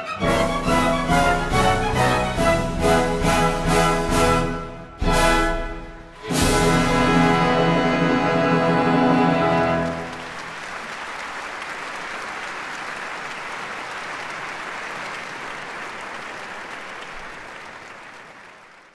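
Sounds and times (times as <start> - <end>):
orchestra chord: 0.0 - 10.4
audience applause: 6.4 - 18.9.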